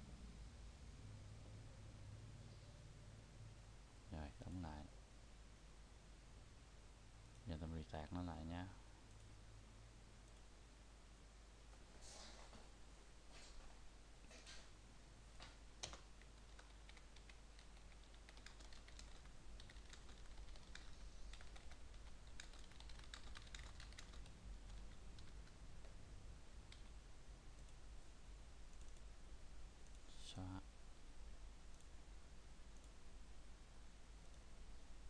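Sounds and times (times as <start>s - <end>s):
typing on computer keyboard: 15.8s - 25.6s.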